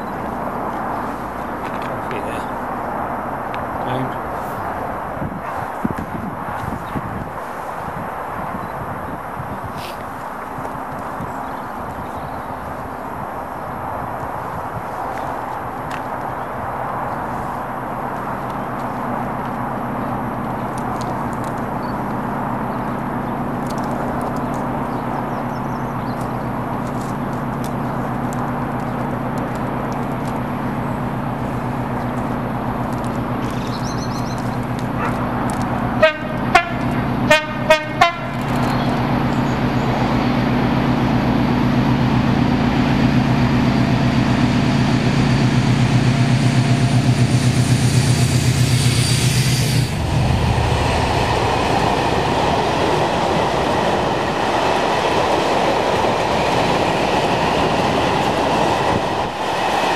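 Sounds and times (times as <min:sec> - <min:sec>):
diesel locomotive engine: 0:00.0 - 0:59.9
locomotive horn blasts: 0:36.0 - 0:38.4.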